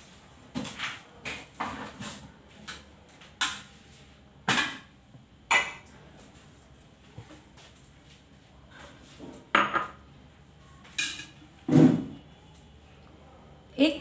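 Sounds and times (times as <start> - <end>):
dishes and utensils clinking: 5.5 - 5.9, 10.8 - 12.0.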